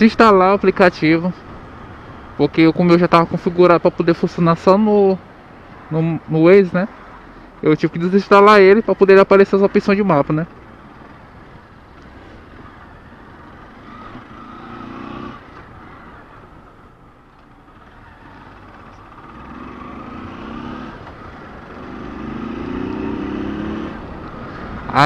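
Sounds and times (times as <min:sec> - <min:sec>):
low road rumble: 0:00.0 - 0:25.0
motorcycle engine revving: 0:10.5 - 0:25.0.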